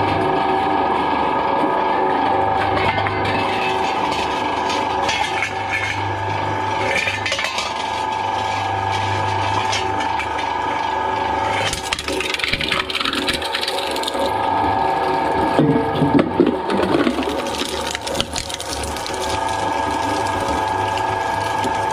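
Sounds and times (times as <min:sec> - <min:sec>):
shredder motor hum: 0:00.0 - 0:21.9
metal can crunching: 0:03.3 - 0:06.1, 0:06.7 - 0:10.9, 0:11.5 - 0:14.3, 0:16.4 - 0:21.9.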